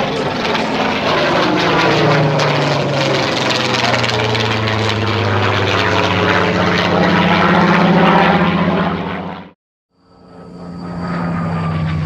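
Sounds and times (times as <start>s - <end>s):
aircraft engine flying past: 0.0s - 12.0s.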